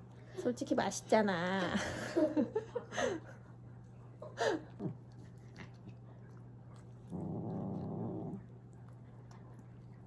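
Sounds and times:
cat chewing wet food: 4.7 - 10.0.

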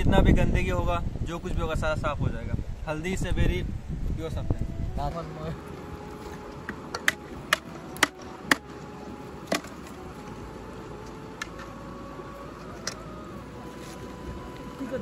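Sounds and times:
blade chopping bamboo: 6.6 - 8.7, 9.4 - 9.8.

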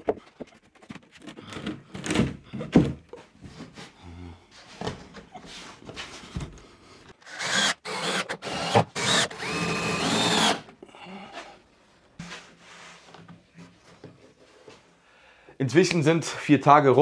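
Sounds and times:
cordless drill whining: 7.2 - 10.7.

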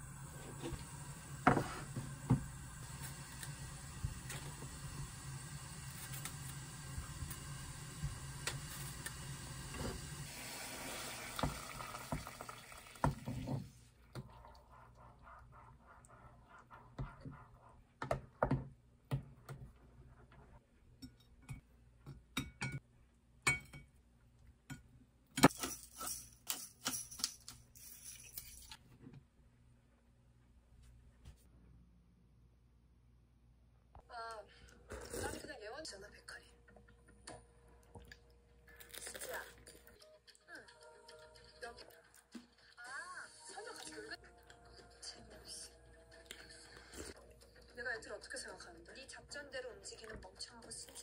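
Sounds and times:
running water: 0.0 - 14.8
wooden spoon stirring in a bowl: 13.0 - 18.4.

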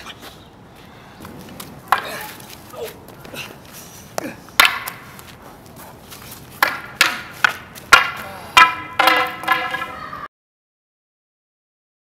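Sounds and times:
wooden staffs clacking together: 1.5 - 3.4, 4.2 - 5.3, 6.2 - 10.0.

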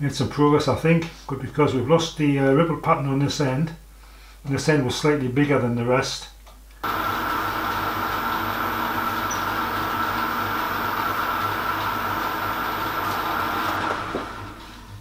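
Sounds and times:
metal lathe running: 6.8 - 15.0.

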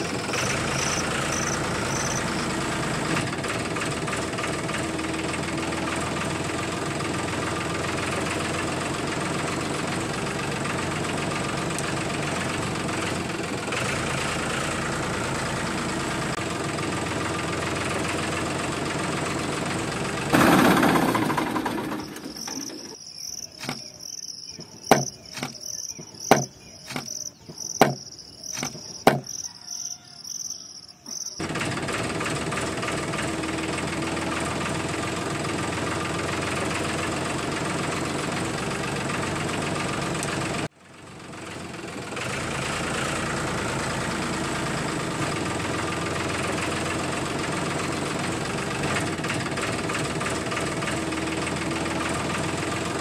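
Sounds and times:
crickets chirping: 0.0 - 2.6, 20.8 - 31.4
motor drone: 0.0 - 27.2.

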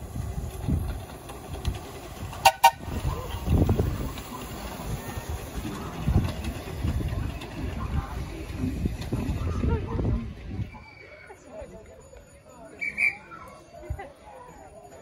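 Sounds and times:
train rumbling along track: 0.0 - 15.0
train whistle toots: 2.4 - 2.9.

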